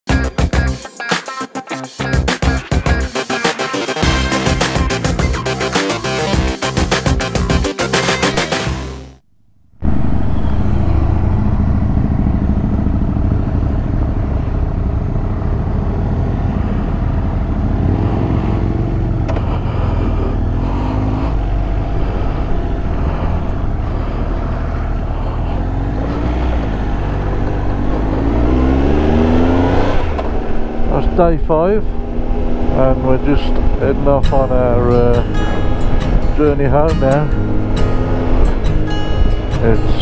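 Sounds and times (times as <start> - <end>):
motorcycle engine revving: 9.6 - 39.6.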